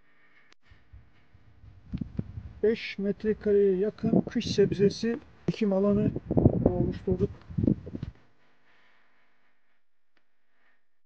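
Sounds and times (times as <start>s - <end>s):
faint background hiss: 1.8s - 9.0s.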